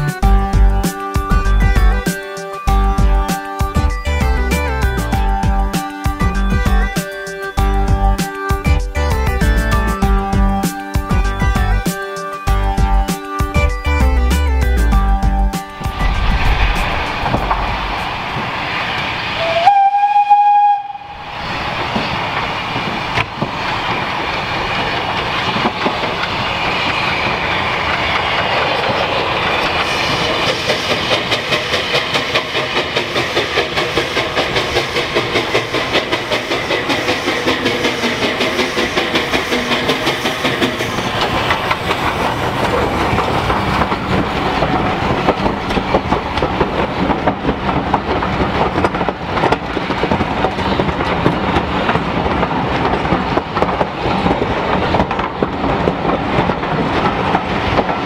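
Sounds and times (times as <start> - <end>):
rhythmic clatter of train wheels: 0.0 - 58.0
train rumble: 0.0 - 58.0
steam locomotive whistle blast: 19.3 - 21.3.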